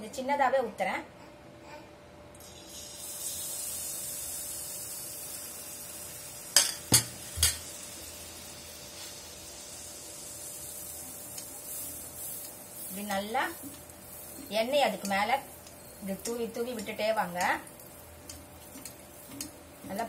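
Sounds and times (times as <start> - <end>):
batter sizzling in hot oil: 2.4 - 20.0.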